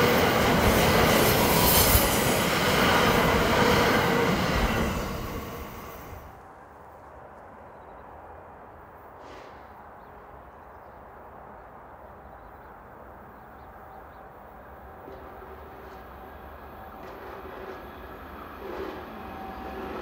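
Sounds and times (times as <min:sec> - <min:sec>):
electric train rumble: 0:00.0 - 0:06.6, 0:13.6 - 0:20.0.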